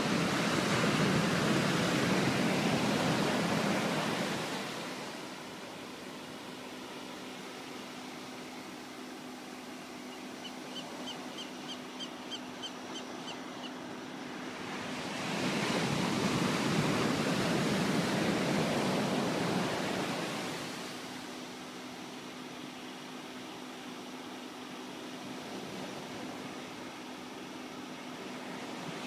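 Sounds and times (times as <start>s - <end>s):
surf: 0.0s - 5.9s.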